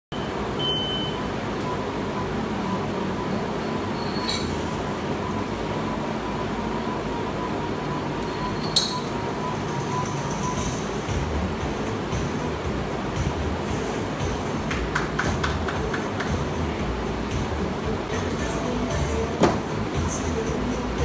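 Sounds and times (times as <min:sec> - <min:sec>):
thin steady tone: 0:00.1 - 0:15.1
rushing background noise: 0:00.1 - 0:21.0.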